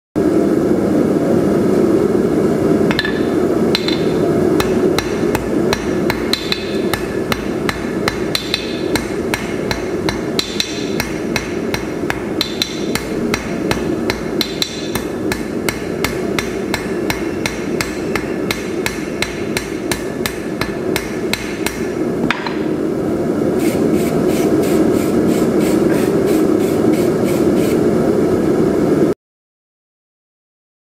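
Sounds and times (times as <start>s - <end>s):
hammer blows on anvil: 2.9s - 22.8s.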